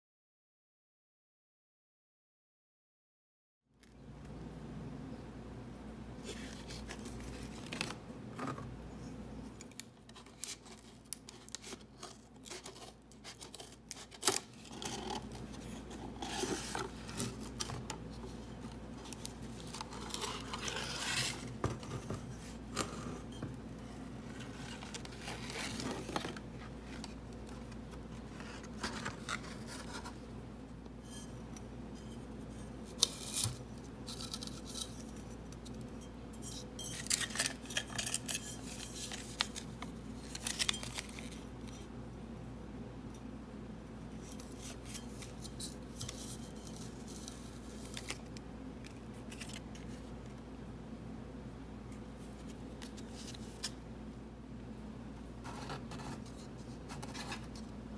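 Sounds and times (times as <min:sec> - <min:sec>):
rustling and scraping packaging: 0:06.2 - 0:30.4, 0:31.0 - 0:41.9, 0:44.1 - 0:50.4, 0:51.9 - 0:53.8, 0:55.4 - 0:57.9.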